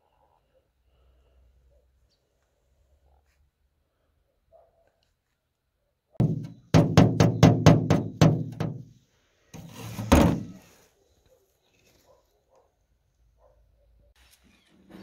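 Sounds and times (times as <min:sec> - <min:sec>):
metal spatula knocking on car: 0:06.2 - 0:08.9
spatula scraping: 0:09.6 - 0:10.7.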